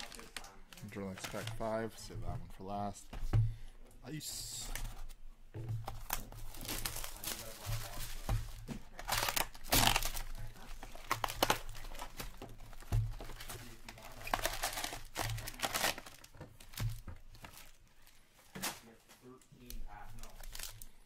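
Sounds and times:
plastic shrink-wrap crinkling: 0:00.0 - 0:01.9, 0:06.0 - 0:21.0
foil packs rustling: 0:00.0 - 0:02.1, 0:05.9 - 0:21.0
cardboard box tearing: 0:09.0 - 0:10.3.

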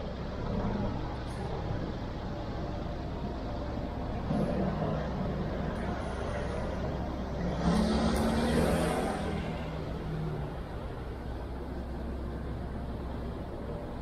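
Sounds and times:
motor vehicles running: 0:00.0 - 0:14.0
vehicle passing close: 0:07.3 - 0:11.0.

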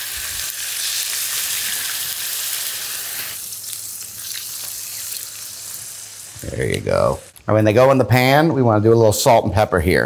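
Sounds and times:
chicken sizzling in oil: 0:00.0 - 0:07.4.

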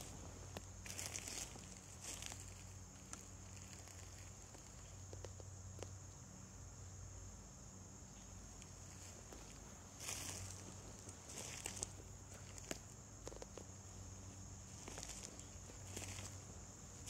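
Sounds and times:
footsteps on forest floor: 0:00.0 - 0:04.7, 0:08.9 - 0:17.0
high-pitched insect drone: 0:11.3 - 0:17.0.

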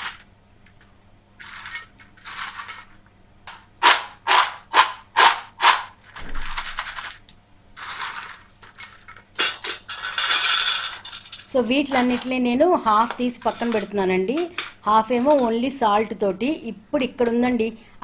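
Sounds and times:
snacks poured onto steel plate: 0:01.4 - 0:04.6, 0:05.6 - 0:15.6
crisp snacks rattling in steel bowl: 0:01.4 - 0:15.8.

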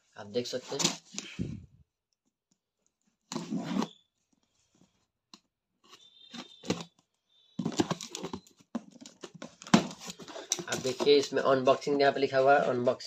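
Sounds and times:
cardboard scraping and tearing: 0:03.3 - 0:03.9, 0:07.6 - 0:08.5
cardboard carton being opened: 0:07.6 - 0:11.3.

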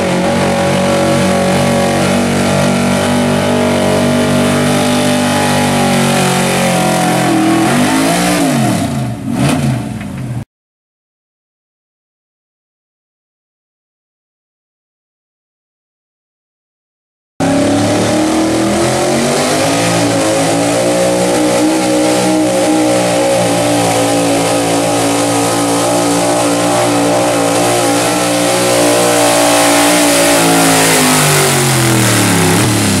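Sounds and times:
truck engine revving hard: 0:00.0 - 0:10.0, 0:17.4 - 0:33.0.

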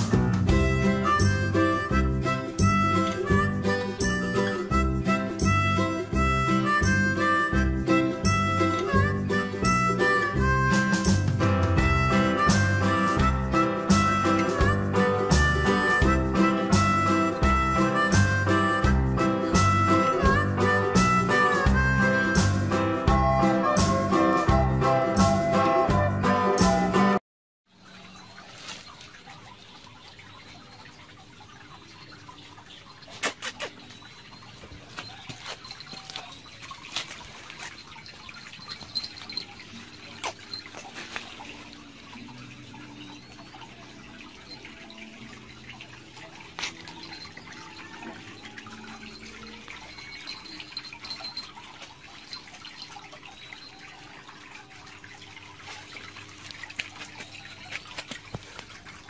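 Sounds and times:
small jingle bell tinkling: 0:34.3 - 0:42.2, 0:46.2 - 0:54.7
light clicks and scuffs: 0:55.6 - 0:58.8.

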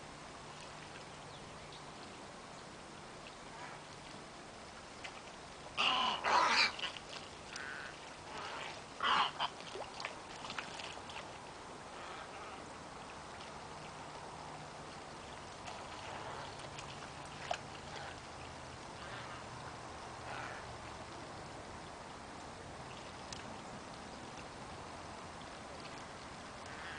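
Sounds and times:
wading birds harsh calls: 0:05.7 - 0:11.2, 0:11.8 - 0:13.2, 0:15.1 - 0:21.0, 0:26.6 - 0:26.9.

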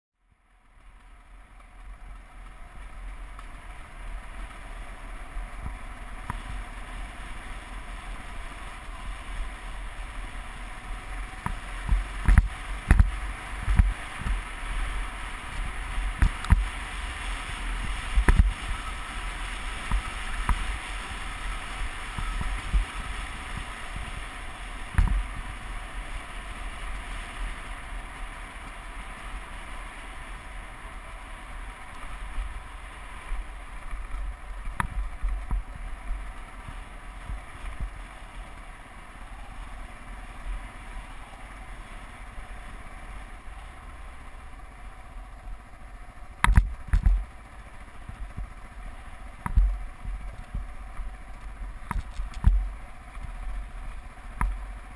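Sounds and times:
motorcycle engine rumble: 0:00.2 - 0:54.9
wind rushing over microphone: 0:05.5 - 0:28.0, 0:49.4 - 0:54.9
knocks and thumps over bumps: 0:11.4 - 0:14.5, 0:46.4 - 0:47.4, 0:49.4 - 0:53.4.

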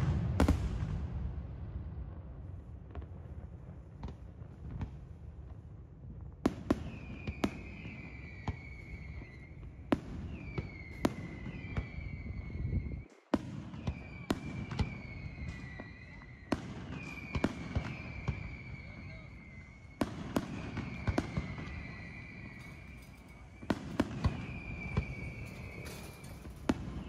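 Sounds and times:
shrill firework whistle: 0:06.6 - 0:27.0
firework shells bursting: 0:19.6 - 0:27.0.

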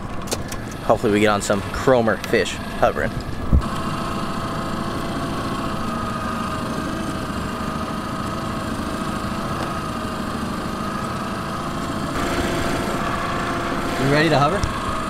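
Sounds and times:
boat motor running: 0:00.0 - 0:15.0.

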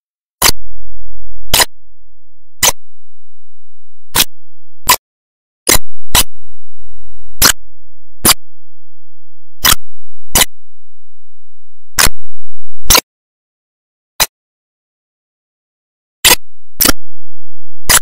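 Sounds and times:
sharp loud clicks: 0:05.7 - 0:06.4, 0:09.6 - 0:10.6, 0:12.0 - 0:12.3.

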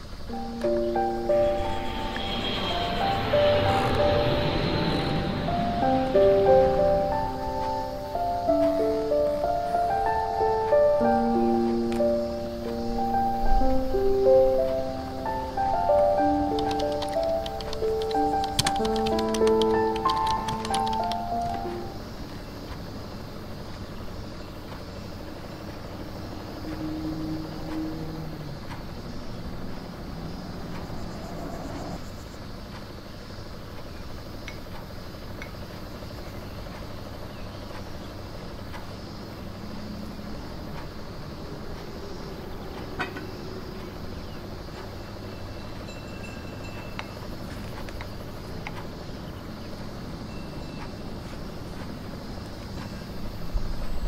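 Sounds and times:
large vehicle engine rumbling: 0:00.0 - 0:21.9, 0:25.6 - 0:32.3
faint high beeps: 0:00.3 - 0:07.1.

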